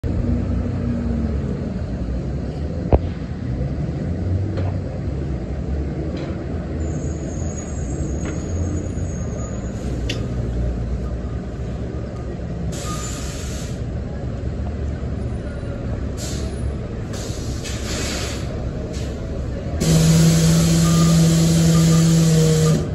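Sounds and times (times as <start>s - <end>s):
bus engine rumble: 0.0s - 22.9s
air brake hissing: 12.7s - 13.9s, 16.1s - 22.9s.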